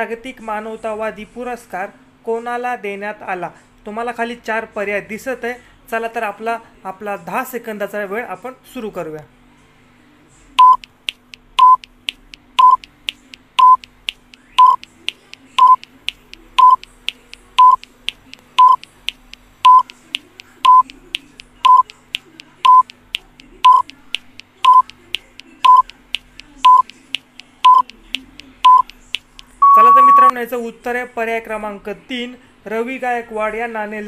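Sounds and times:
short high timer beeps: 10.6s - 10.9s, 11.6s - 11.8s, 12.6s - 12.9s, 13.6s - 13.9s, 14.6s - 14.9s, 15.6s - 15.8s, 16.6s - 16.8s, 17.6s - 17.8s, 18.6s - 18.8s, 19.6s - 19.9s, 20.6s - 20.8s, 21.6s - 21.9s, 22.6s - 22.9s, 23.6s - 23.9s, 24.6s - 24.9s, 25.6s - 25.9s, 26.6s - 26.9s, 27.6s - 27.9s, 28.6s - 28.9s, 29.6s - 30.3s
light timer clicks: 10.6s - 29.6s.

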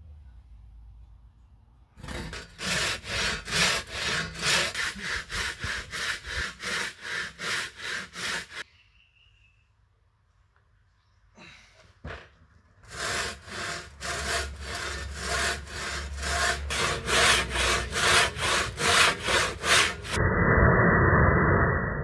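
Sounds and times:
handsaw rasping through timber: 2.0s - 8.6s, 12.8s - 20.2s.

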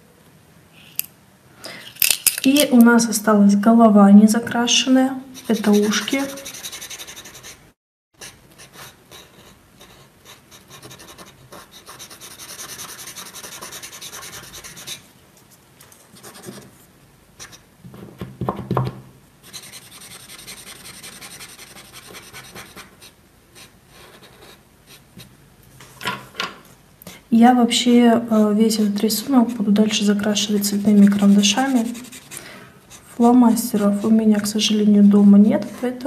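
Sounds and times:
marker scratching on paper: 5.3s - 7.6s, 8.2s - 15.0s, 16.2s - 16.7s, 19.5s - 25.0s, 30.3s - 33.1s.

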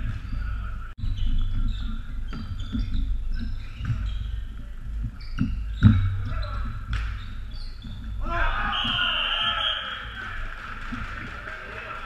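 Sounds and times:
shoes squeaking on court floor: 0.0s - 10.2s
sticks and ball clacking: 5.4s - 7.3s.

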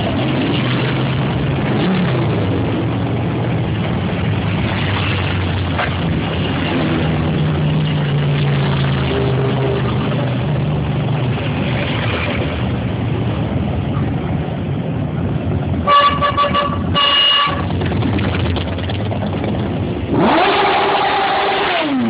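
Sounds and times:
motorcycle engines running: 0.0s - 22.0s
vehicle horn honking: 15.8s - 17.7s.

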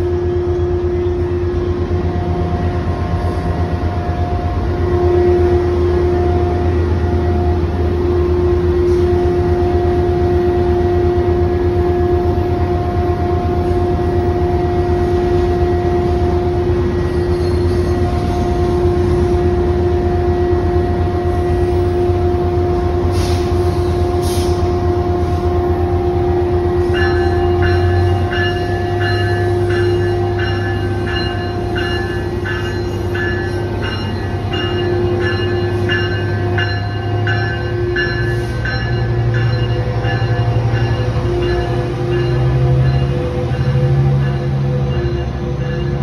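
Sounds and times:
freight train rumble: 0.0s - 46.0s.

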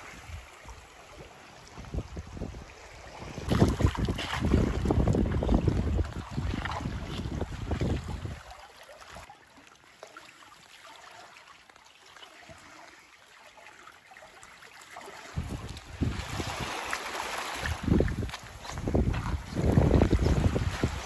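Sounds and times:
water lapping at shore: 0.0s - 21.0s
wind buffeting microphone: 1.6s - 8.5s, 15.4s - 16.9s, 17.5s - 21.0s.

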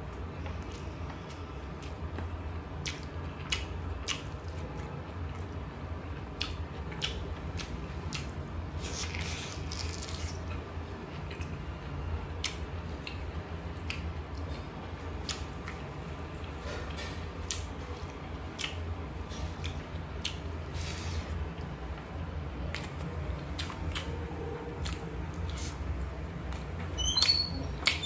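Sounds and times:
wet chewing and lip smacks: 2.8s - 5.5s, 6.4s - 10.6s, 15.2s - 15.8s, 17.4s - 18.8s, 19.4s - 20.5s, 23.6s - 24.1s
crunching of raw vegetable: 6.4s - 10.6s.

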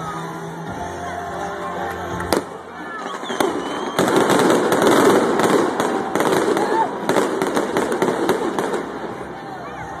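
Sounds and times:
crowd voices: 0.0s - 10.0s
music: 0.0s - 10.0s
fireworks bangs: 2.3s - 9.4s.

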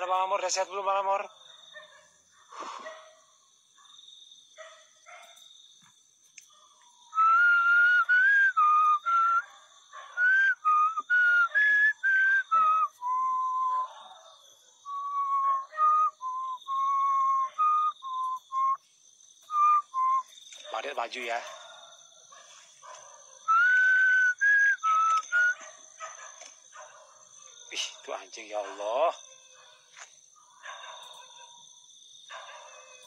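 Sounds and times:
person whistling a tune: 7.2s - 9.4s, 10.2s - 13.9s, 14.9s - 18.8s, 19.5s - 20.4s, 23.5s - 25.6s.

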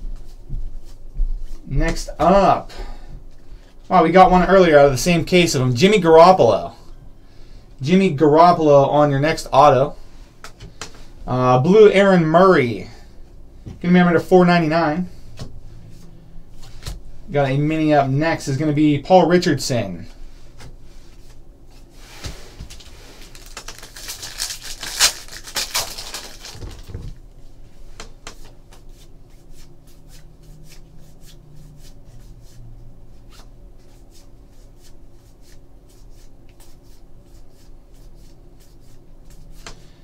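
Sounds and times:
cards rustling and sliding: 20.5s - 27.0s.

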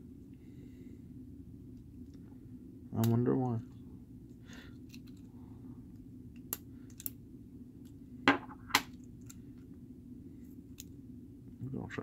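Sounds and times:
magnets clicking together: 6.4s - 7.2s.

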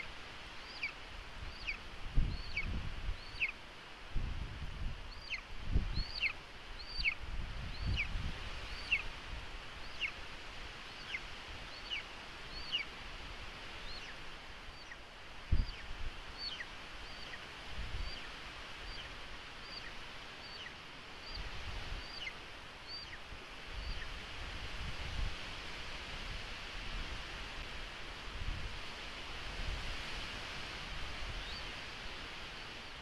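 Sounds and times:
eaglet calling: 0.0s - 3.6s, 5.1s - 9.2s, 9.8s - 10.2s, 10.8s - 13.0s, 13.7s - 24.2s, 31.4s - 31.9s.

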